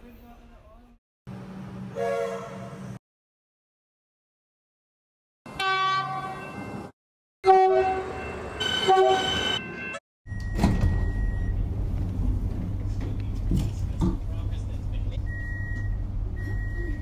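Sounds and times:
train horn: 0:01.9 - 0:02.8, 0:05.6 - 0:06.4, 0:07.4 - 0:09.6
train door chime beep: 0:08.0 - 0:11.6.

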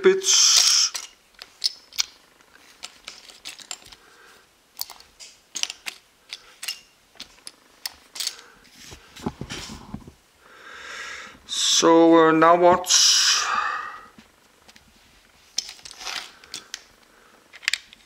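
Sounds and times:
plastic toy pieces clicking on table: 0:00.6 - 0:02.2, 0:04.8 - 0:08.4.

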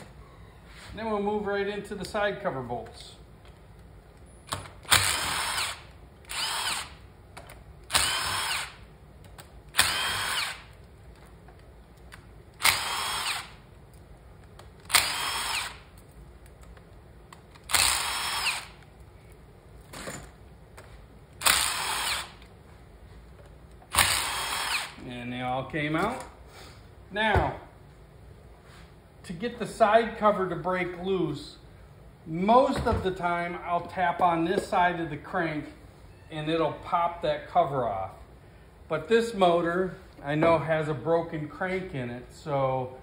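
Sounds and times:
cordless drill motor whine: 0:04.9 - 0:07.0, 0:07.9 - 0:08.8, 0:09.8 - 0:10.7, 0:12.6 - 0:13.6, 0:14.9 - 0:15.8, 0:17.7 - 0:18.8, 0:21.4 - 0:22.4, 0:23.9 - 0:25.0.

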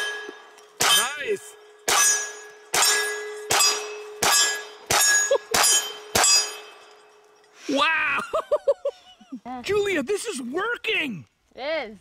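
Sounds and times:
bullets clanging on steel target: 0:00.0 - 0:07.6.

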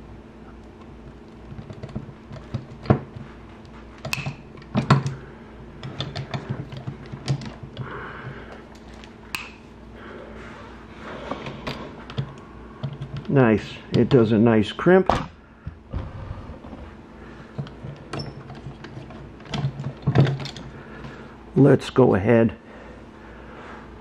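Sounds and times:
handling tool and wire: 0:00.6 - 0:05.2, 0:05.8 - 0:09.7, 0:17.5 - 0:21.1.

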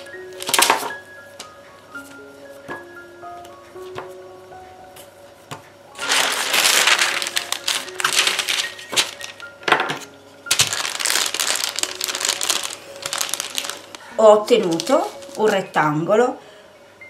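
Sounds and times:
baking paper crinkling: 0:00.0 - 0:01.0, 0:06.0 - 0:09.6, 0:10.5 - 0:15.8
soft background music: 0:00.0 - 0:17.0.

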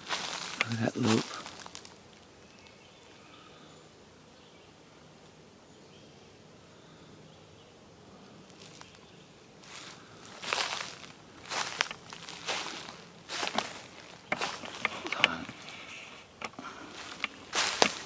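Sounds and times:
footsteps through dry leaves: 0:00.0 - 0:02.0, 0:08.5 - 0:18.0
distant birds: 0:00.0 - 0:18.0
faint insects: 0:00.0 - 0:18.0.

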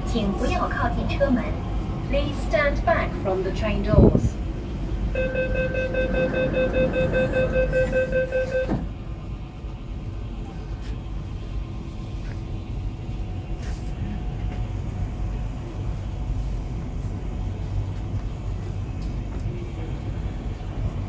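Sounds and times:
train running gear rumble: 0:00.0 - 0:21.0
faint steady tones: 0:04.5 - 0:13.4.

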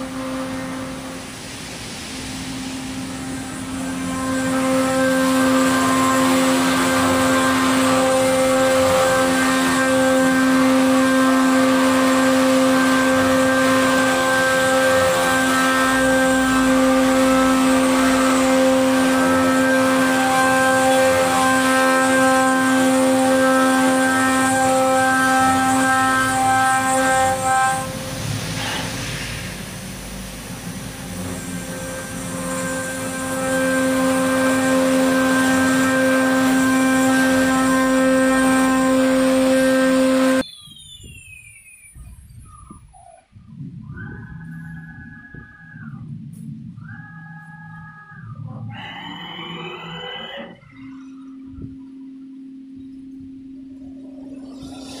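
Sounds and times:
milling machine spindle whine: 0:00.0 - 0:42.1, 0:43.6 - 0:55.0
cutter rasping metal: 0:03.0 - 0:29.6, 0:30.4 - 0:40.4.

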